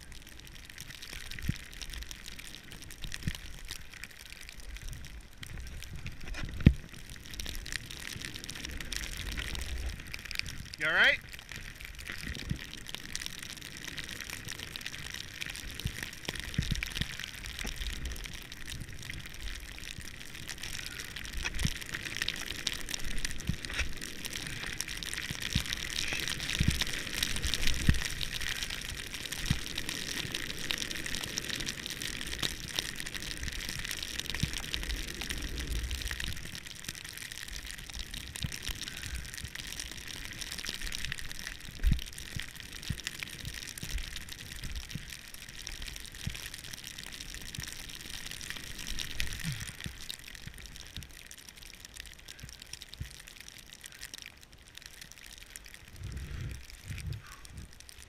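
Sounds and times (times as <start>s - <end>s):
wind buffeting microphone: 55.9s - 57.8s.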